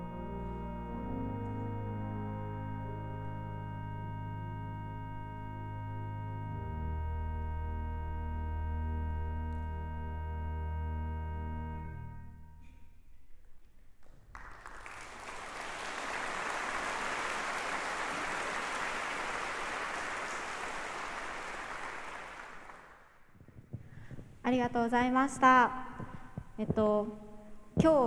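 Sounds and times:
pipe organ chord: 0:00.0 - 0:12.6
audience applause: 0:14.3 - 0:23.2.

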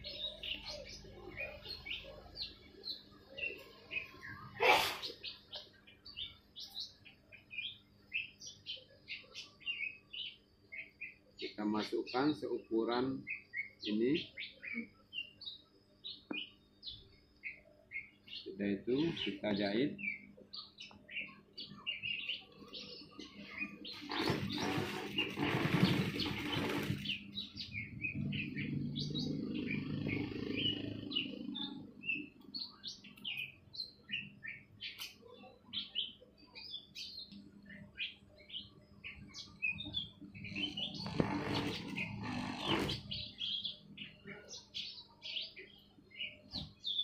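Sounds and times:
small birds chirping: 0:00.0 - 0:47.0
sewing machine stitching: 0:24.1 - 0:27.2, 0:40.8 - 0:43.0.

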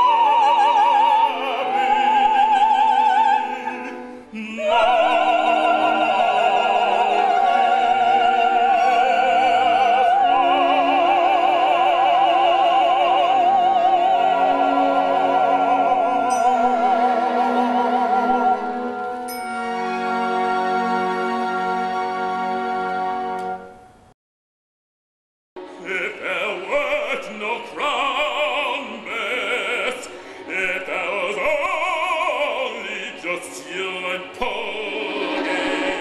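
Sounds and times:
operatic soprano singing: 0:00.0 - 0:21.2, 0:25.7 - 0:36.0
instrumental accompaniment: 0:00.0 - 0:24.1.

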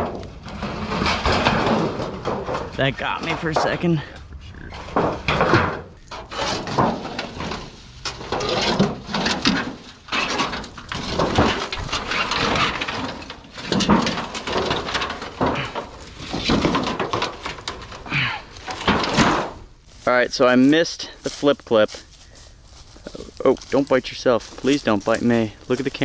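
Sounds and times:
metal sheet knocks: 0:00.0 - 0:04.1
metal sheets scraping and rattling: 0:00.0 - 0:21.5
leaves rustling: 0:06.0 - 0:26.0.

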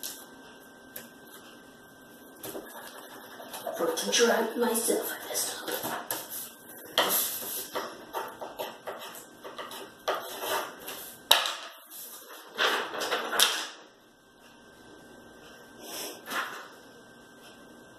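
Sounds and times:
pen scribbling on paper: 0:07.1 - 0:11.1.

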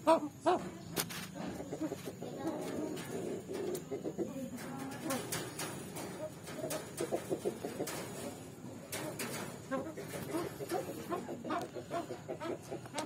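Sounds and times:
birds cooing and clucking: 0:00.0 - 0:13.0.

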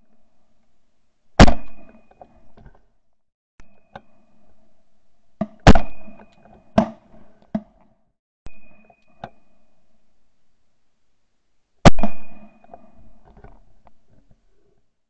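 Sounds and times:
shotgun shots: 0:01.4 - 0:01.9, 0:05.6 - 0:06.2.

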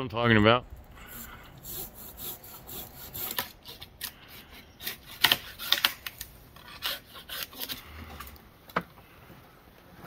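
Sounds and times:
hand saw scraping wood: 0:01.0 - 0:08.3
wood cracking: 0:04.8 - 0:07.8.

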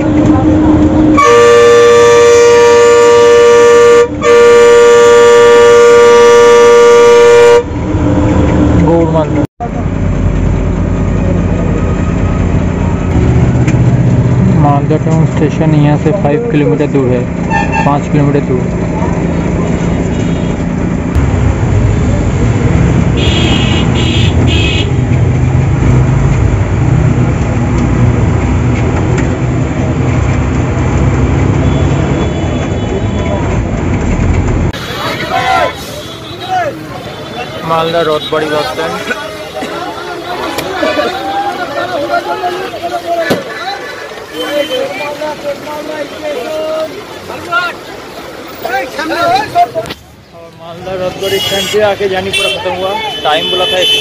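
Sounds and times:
bus engine and road rumble: 0:00.0 - 0:54.0
bus horn blasts: 0:00.5 - 0:07.7, 0:17.5 - 0:17.9, 0:23.2 - 0:25.0, 0:51.2 - 0:54.0.

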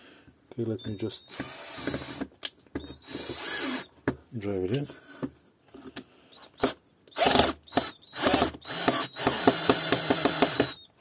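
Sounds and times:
cordless drill driving screw: 0:00.8 - 0:03.9, 0:06.3 - 0:10.9
drill clutch clicking: 0:07.1 - 0:10.8.

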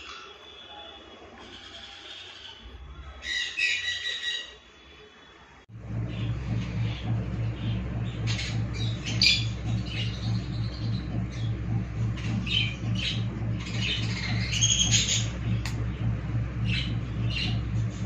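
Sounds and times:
parrots squawking: 0:01.4 - 0:04.7
steady low hum: 0:05.6 - 0:18.0.

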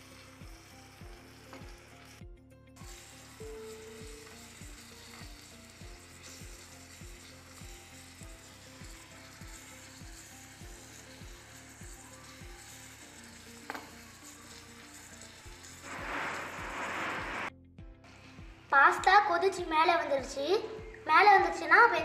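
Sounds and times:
onions sizzling in oil: 0:00.0 - 0:02.2, 0:02.8 - 0:17.5.

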